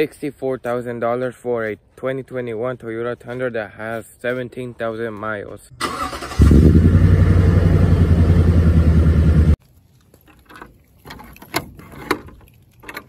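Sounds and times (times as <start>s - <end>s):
loud engine-like rumble: 6.4s - 9.6s.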